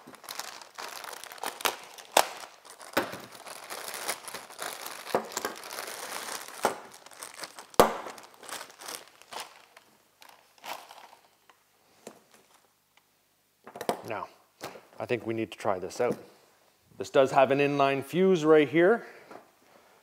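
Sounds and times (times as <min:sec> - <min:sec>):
plastic bag crinkling: 0:00.0 - 0:11.5.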